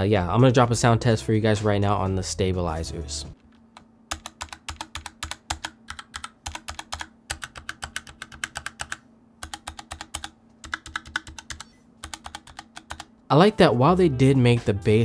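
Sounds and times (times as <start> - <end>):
mechanical keyboard keys clacking: 4.1 - 13.1.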